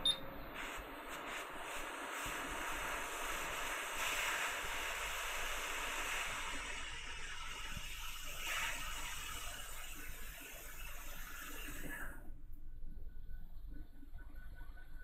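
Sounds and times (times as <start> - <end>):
hot air blower hissing: 0.0 - 12.2.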